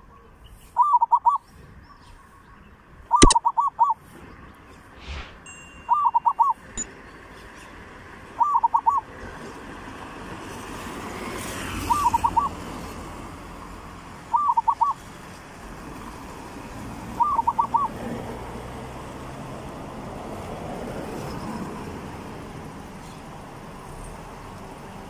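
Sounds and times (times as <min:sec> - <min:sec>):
dove cooing: 0:00.8 - 0:01.4, 0:03.2 - 0:04.0, 0:08.4 - 0:09.1, 0:11.9 - 0:12.6, 0:14.3 - 0:15.0, 0:17.2 - 0:18.0.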